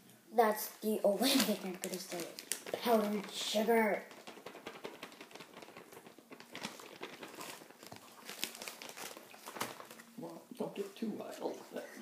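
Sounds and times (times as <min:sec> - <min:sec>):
hands squeezing sticky slime: 0:01.2 - 0:10.2.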